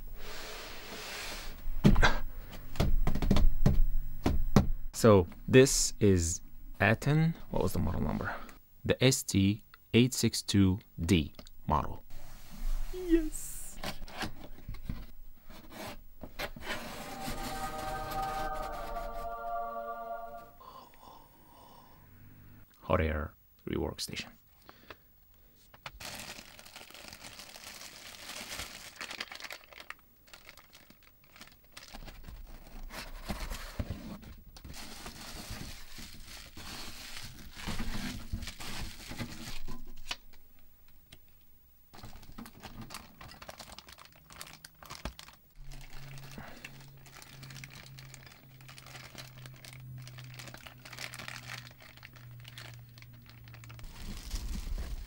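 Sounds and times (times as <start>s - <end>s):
plastic wrapping crinkling: 25.8s - 32.9s, 34.7s - 40.1s, 42.0s - 55.0s
low steady hum: 45.2s - 55.0s.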